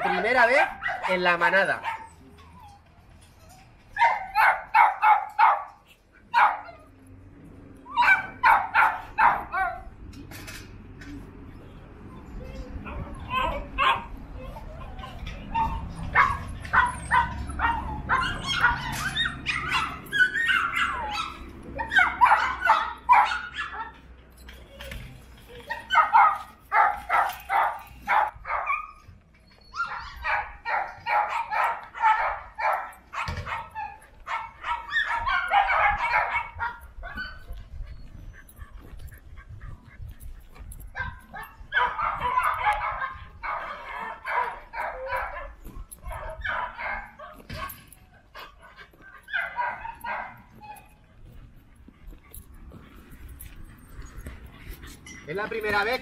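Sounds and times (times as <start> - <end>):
dogs barking: 0.0 - 2.2, 4.0 - 7.0, 7.9 - 10.0, 12.9 - 24.0, 25.7 - 29.1, 29.7 - 40.0, 40.6 - 56.0.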